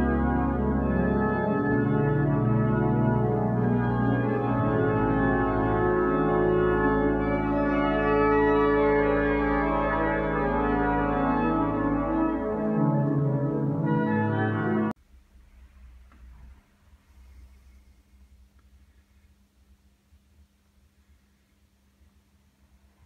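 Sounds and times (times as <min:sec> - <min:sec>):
deep organ pedal note: 0:00.0 - 0:15.0
pipe organ chords: 0:00.0 - 0:15.0.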